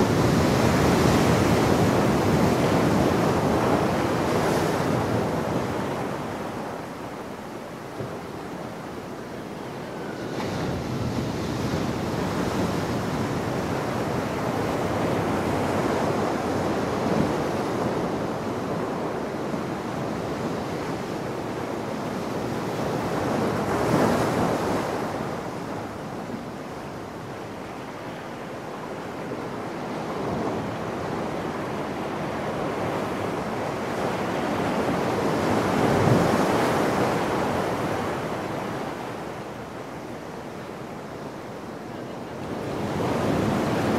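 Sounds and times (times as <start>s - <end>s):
ocean surf breaking on rocks: 42.3s - 43.9s.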